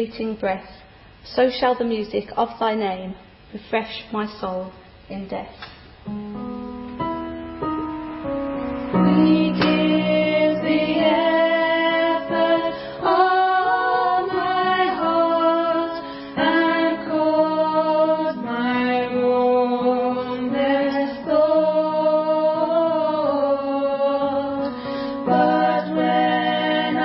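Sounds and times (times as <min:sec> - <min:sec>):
congregation singing a hymn: 0:08.9 - 0:27.0.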